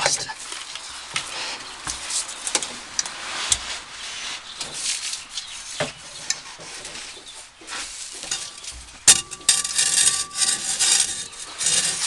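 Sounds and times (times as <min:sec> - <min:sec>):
metal scraping and rubbing: 0:07.7 - 0:12.0.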